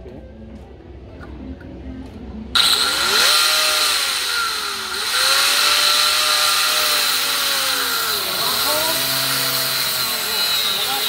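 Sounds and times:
angle grinder cutting metal: 2.6 - 11.0.

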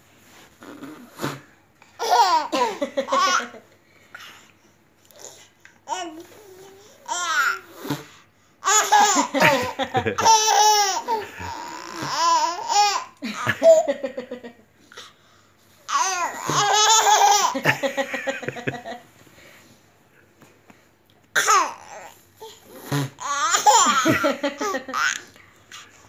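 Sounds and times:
baby laughing: 2.0 - 3.6, 8.6 - 14.0, 15.9 - 19.0, 23.0 - 25.3.

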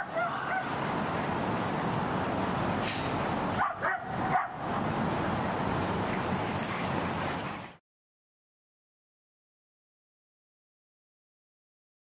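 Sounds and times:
dog yelping: 0.0 - 0.7, 3.6 - 4.6.

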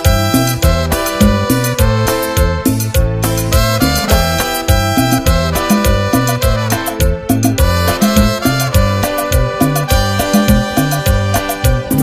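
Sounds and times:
cumbia band instrumental: 0.0 - 12.0.

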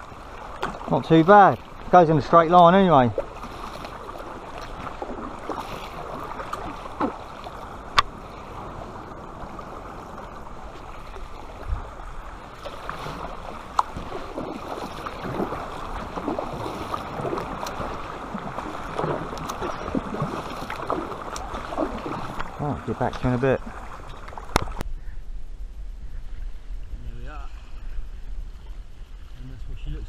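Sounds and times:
paddle splashing in water: 0.0 - 24.8.

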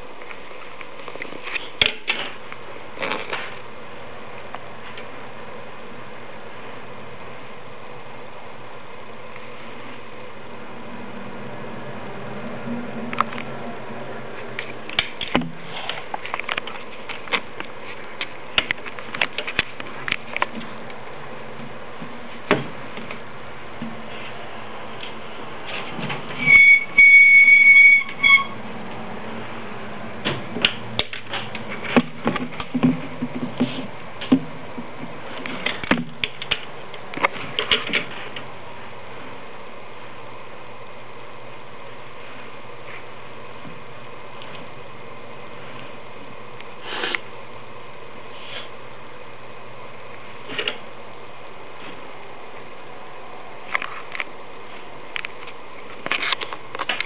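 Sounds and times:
loud high squeal: 26.4 - 28.6.

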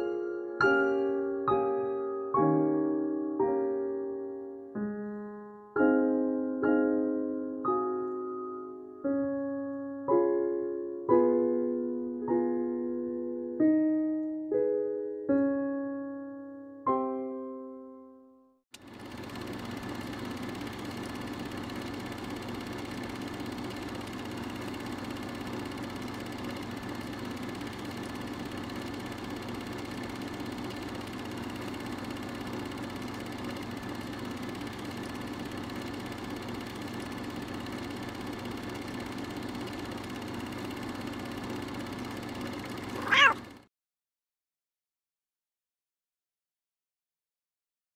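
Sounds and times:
cat purring: 42.6 - 43.4
cat meow: 42.9 - 43.4.

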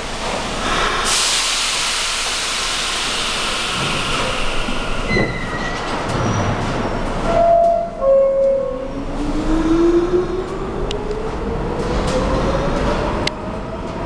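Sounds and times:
air brakes hissing: 0.5 - 6.1.

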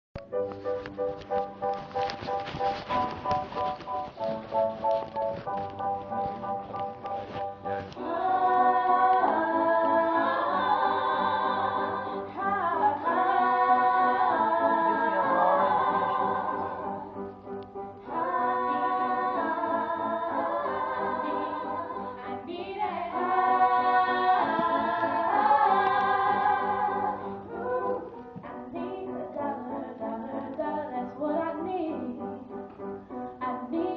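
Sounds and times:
girls singing together: 8.0 - 17.1, 18.0 - 32.4.

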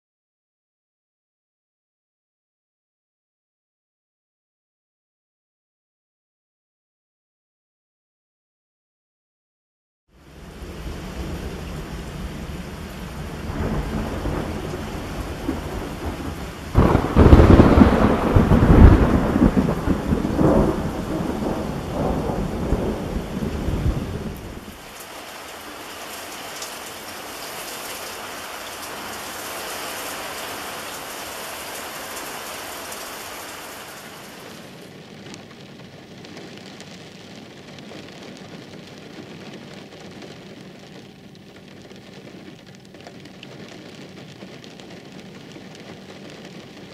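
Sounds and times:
heavy rain hissing: 10.2 - 46.9
deep thunder rumble: 10.5 - 24.8.

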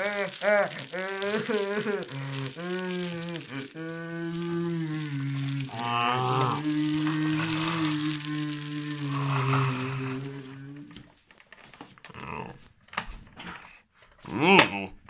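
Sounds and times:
wavering voice-like sounds: 0.0 - 11.0.

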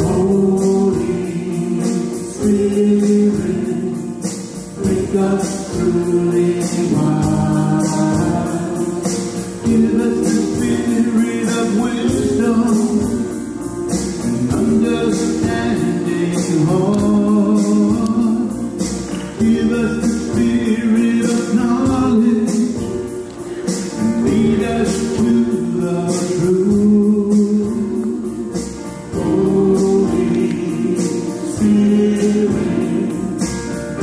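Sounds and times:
choir singing a hymn: 0.0 - 18.6, 19.4 - 34.0
rhythmic accompaniment: 0.0 - 34.0.

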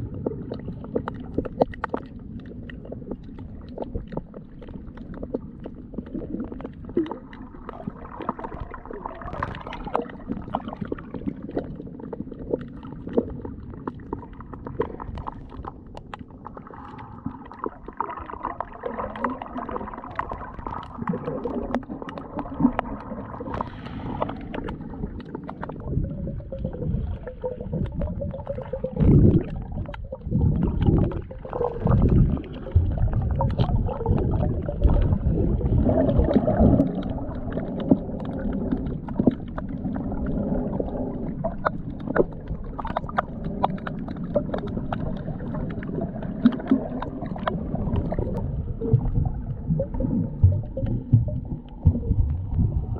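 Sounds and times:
faint underwater clicks: 0.0 - 52.9
underwater churning wash: 0.0 - 52.9
low gurgling surges: 44.6 - 52.9.

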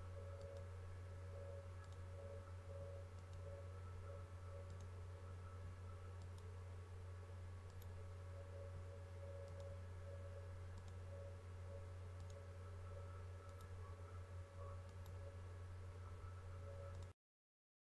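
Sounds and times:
low electrical hum: 0.0 - 17.1
computer mouse clicks: 0.4 - 0.7, 1.8 - 2.0, 3.2 - 3.5, 4.6 - 4.9, 6.2 - 6.5, 7.6 - 8.0, 9.4 - 9.7, 10.7 - 11.0, 12.2 - 12.5, 13.4 - 13.8, 14.6 - 15.2, 16.9 - 17.1.

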